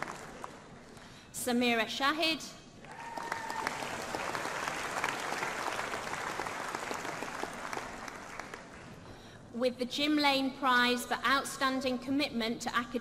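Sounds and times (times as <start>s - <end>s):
audience applauding: 0.0s - 0.7s, 2.8s - 9.0s.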